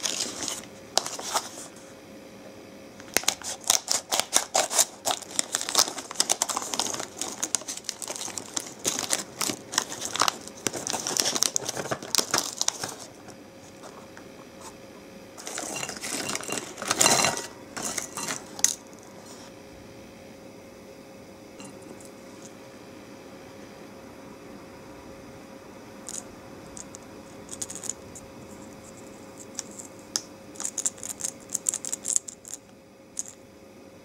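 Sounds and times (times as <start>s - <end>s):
plastic snack pouch crinkling: 0.0s - 1.4s, 3.1s - 13.2s, 26.8s - 28.0s, 30.6s - 32.6s.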